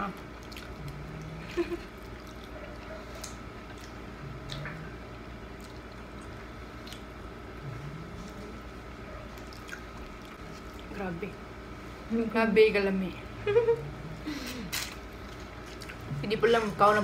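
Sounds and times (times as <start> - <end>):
wet chewing and lip smacks: 0.2 - 1.2, 1.9 - 4.8, 5.5 - 7.3, 9.3 - 11.0, 15.2 - 16.1.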